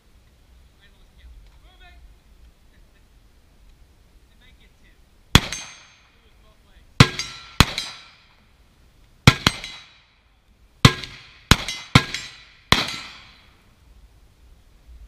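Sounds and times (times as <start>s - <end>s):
gunshots with echo: 5.3s - 6.0s, 7.0s - 8.3s, 9.3s - 10.1s, 10.9s - 13.5s.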